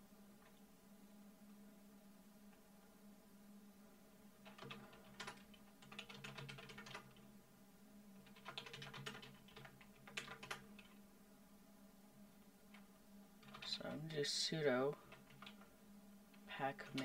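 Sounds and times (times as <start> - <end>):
low steady hum: 0.0 - 17.0
keyboard typing: 4.4 - 7.2, 8.2 - 11.0, 12.7 - 13.8, 15.1 - 15.7, 16.3 - 17.0.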